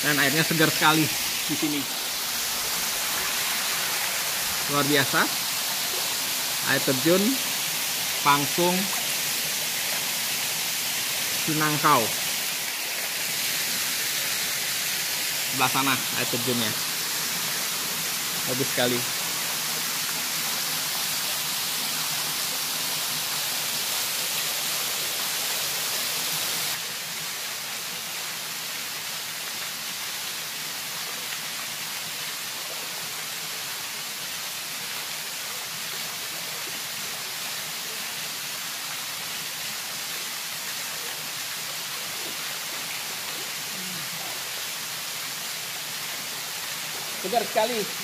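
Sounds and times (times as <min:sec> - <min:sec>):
waterfall rushing into pool: 0:00.0 - 0:48.0.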